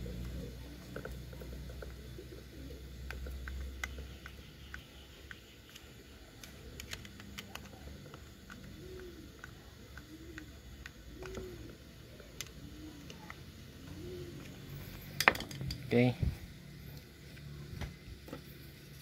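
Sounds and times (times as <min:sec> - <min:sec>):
dove cooing: 0:00.0 - 0:15.1.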